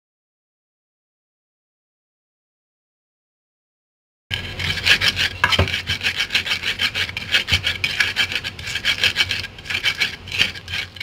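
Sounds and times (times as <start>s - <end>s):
pestle grinding on mortar: 4.3s - 11.0s.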